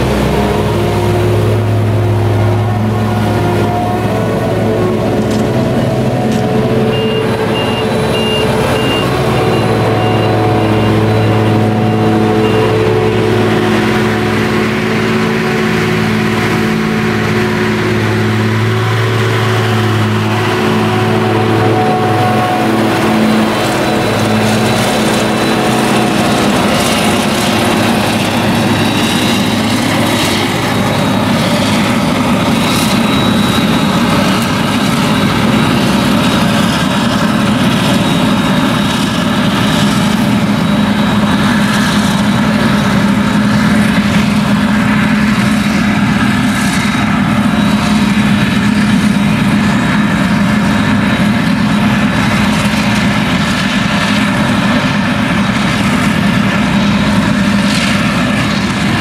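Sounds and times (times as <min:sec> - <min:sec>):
forage harvester engine and chopper: 0:00.0 - 0:59.0
tractor engine: 0:00.0 - 0:59.0.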